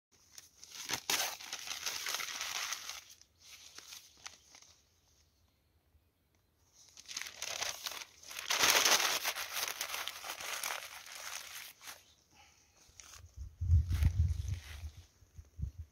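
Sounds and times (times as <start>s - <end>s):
newspaper being crumpled: 0.2s - 4.8s, 6.8s - 12.2s.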